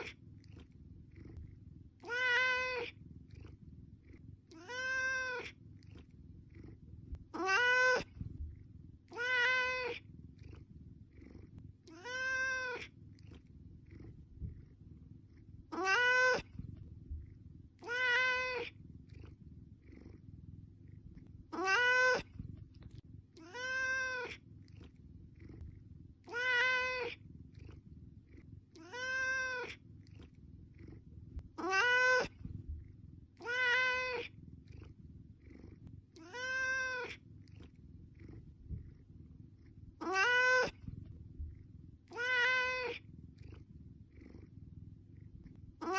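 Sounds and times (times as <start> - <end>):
low steady hum: 0.0 - 45.9
cat meowing: 2.0 - 3.5, 4.5 - 5.6, 7.2 - 8.2, 9.1 - 10.6, 11.8 - 12.9, 15.7 - 16.6, 17.8 - 18.8, 21.5 - 22.4, 23.4 - 24.4, 26.2 - 27.2, 28.8 - 29.8, 31.6 - 32.4, 33.4 - 34.3, 36.2 - 37.2, 40.0 - 40.9, 42.1 - 43.0.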